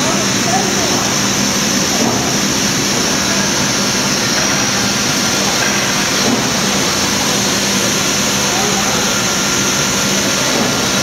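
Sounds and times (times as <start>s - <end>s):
industrial machine hum and hiss: 0.0s - 11.0s.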